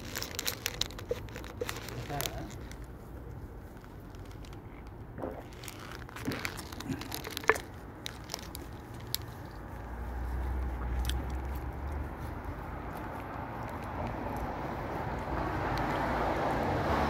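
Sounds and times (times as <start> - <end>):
handling crackles and clicks: 0.0 - 15.9.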